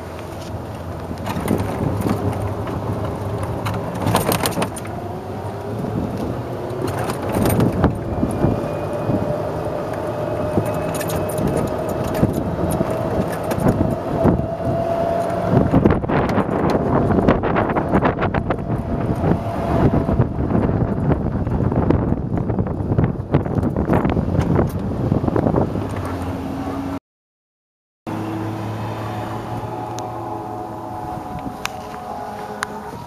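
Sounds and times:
golf cart drive whine: 0:00.0 - 0:27.0, 0:28.1 - 0:33.0
cart body rattling: 0:00.4 - 0:24.9.

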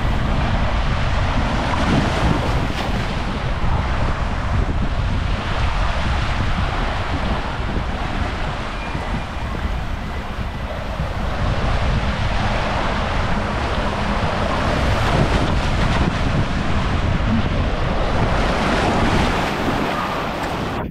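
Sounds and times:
water rushing: 0:00.0 - 0:20.9
wind buffeting microphone: 0:00.0 - 0:20.9.

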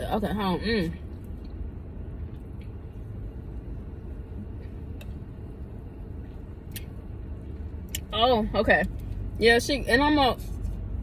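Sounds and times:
low rumble inside a car: 0:00.0 - 0:11.0.

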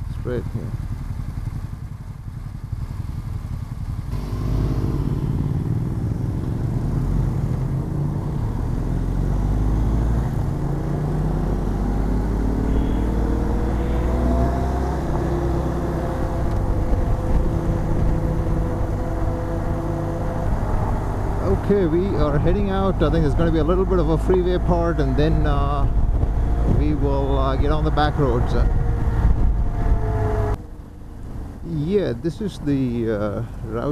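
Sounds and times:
motorcycle engine accelerating: 0:00.0 - 0:33.9
low wind rumble: 0:03.1 - 0:33.9.

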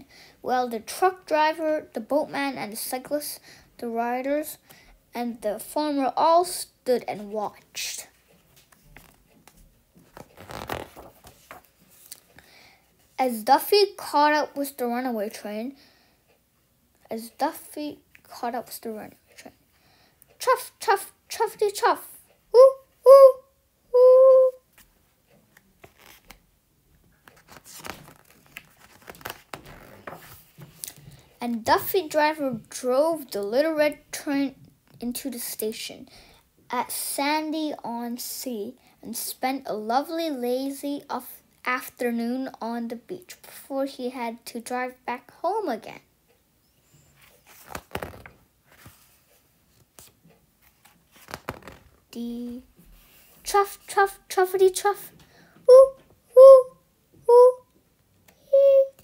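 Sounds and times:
paper page rustling: 0:08.3 - 0:12.3, 0:24.7 - 0:26.4, 0:27.1 - 0:31.2, 0:47.2 - 0:52.0.

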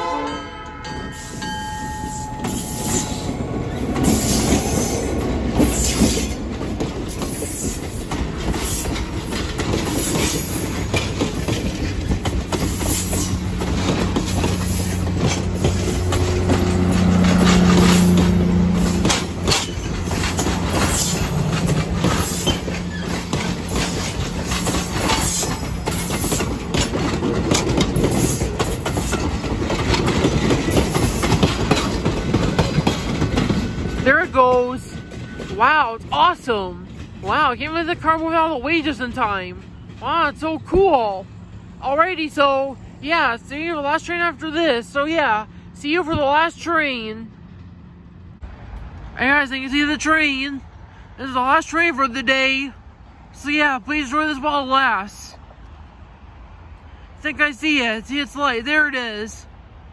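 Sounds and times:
train wheels clacking on rail joints: 0:00.6 - 0:41.7
wheel squeals: 0:07.1 - 0:29.4.

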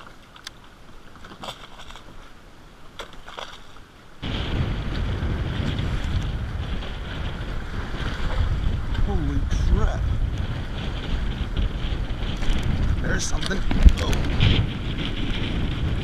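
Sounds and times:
water lapping: 0:00.0 - 0:14.8
wind buffeting microphone: 0:04.2 - 0:16.0.

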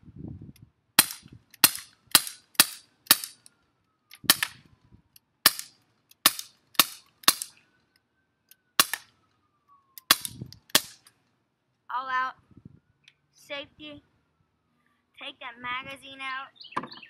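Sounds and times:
bb pistol firing sharp pops: 0:01.0 - 0:03.5, 0:04.1 - 0:04.6, 0:05.4 - 0:07.6, 0:08.8 - 0:09.2, 0:10.0 - 0:11.1.

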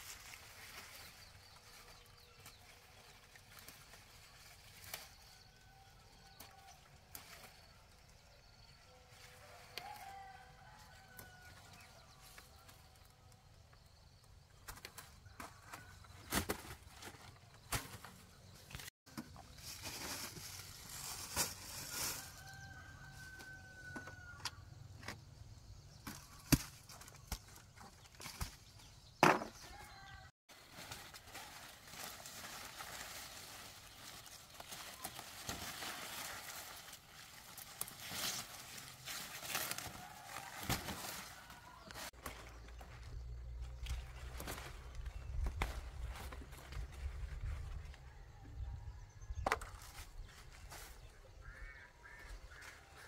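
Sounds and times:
rooster crowing: 0:09.5 - 0:11.7, 0:22.2 - 0:24.7.

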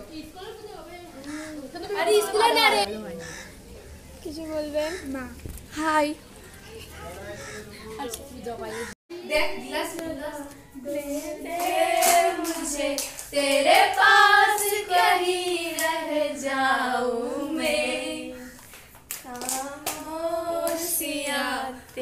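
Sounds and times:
girls singing together: 0:09.1 - 0:18.6, 0:19.2 - 0:22.0
hand claps: 0:18.6 - 0:20.0.

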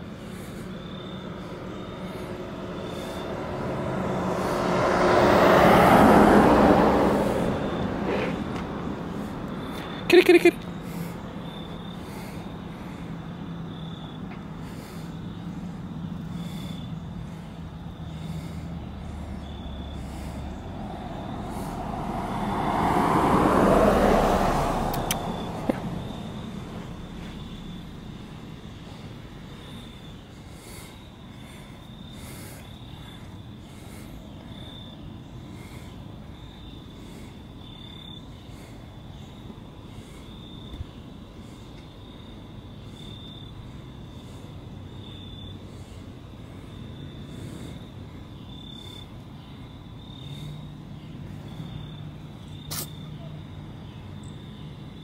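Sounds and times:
car driving past: 0:00.3 - 0:10.1, 0:10.8 - 0:40.7
short sharp clicks: 0:52.7 - 0:53.0.

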